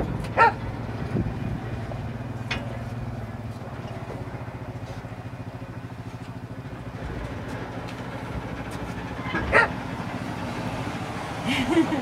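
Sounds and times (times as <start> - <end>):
atv engine puttering: 0.0 - 12.0
dog barking: 0.4 - 0.6, 9.5 - 9.7.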